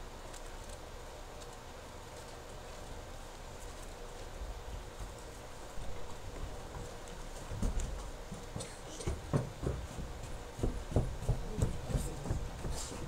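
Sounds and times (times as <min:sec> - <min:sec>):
footsteps: 0:02.1 - 0:13.0.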